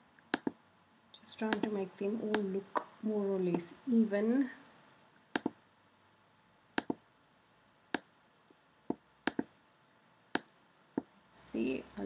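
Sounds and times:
computer mouse clicks: 0.2s - 0.6s, 1.5s - 2.5s, 5.3s - 5.6s, 6.8s - 7.0s, 8.9s - 9.5s.

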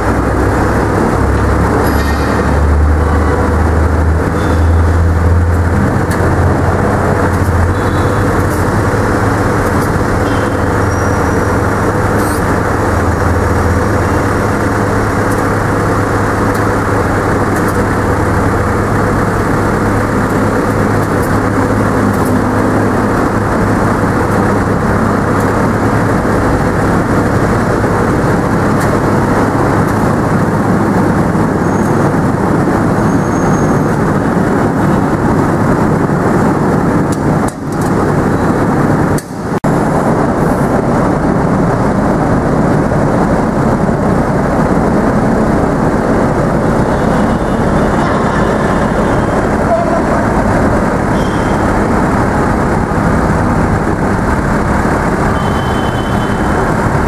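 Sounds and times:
truck engine running: 0.0s - 57.0s.

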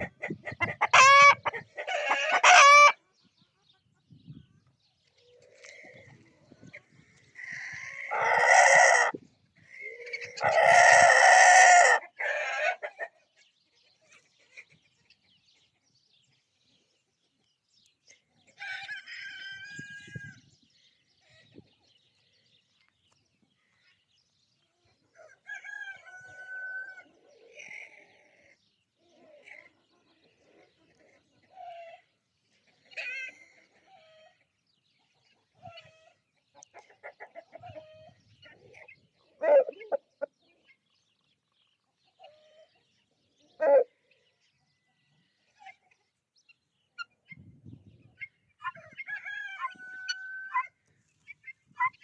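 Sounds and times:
chickens clucking: 0.0s - 16.4s, 24.6s - 52.0s
rooster crowing: 25.4s - 27.0s, 48.8s - 50.7s.

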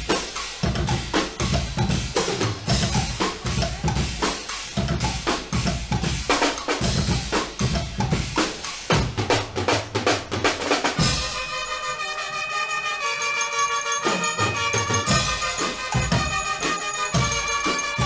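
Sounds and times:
drums playing a driving groove: 0.0s - 11.7s, 14.0s - 18.0s
brass sustained chords: 11.0s - 18.0s.

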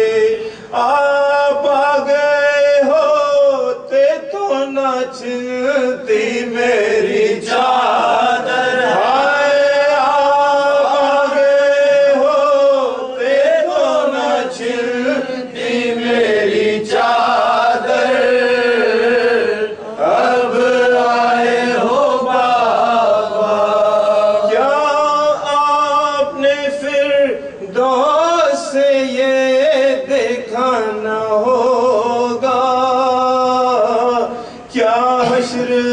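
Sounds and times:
man chanting: 0.0s - 35.9s.

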